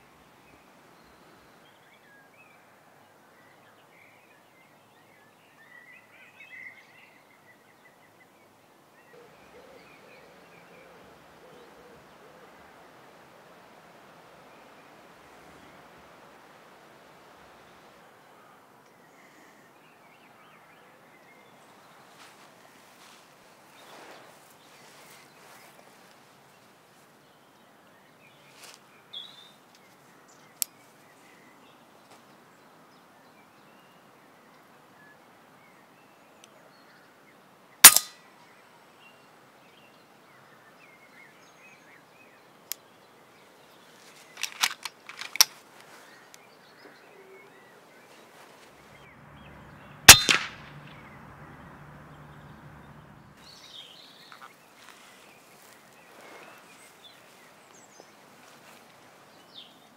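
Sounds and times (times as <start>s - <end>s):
air rifle shot crack: 37.8s - 38.2s, 50.1s - 51.2s
quiet clicks: 44.4s - 46.4s.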